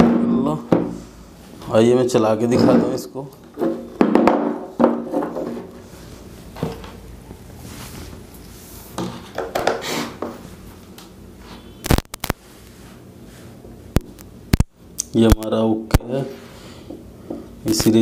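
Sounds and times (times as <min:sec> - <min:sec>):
tools knocking and rustling on bench: 0:02.5 - 0:05.7, 0:09.0 - 0:10.4.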